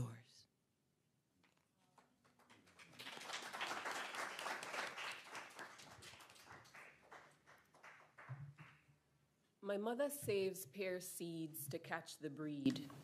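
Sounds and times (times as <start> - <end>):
audience applauding: 2.0 - 8.9.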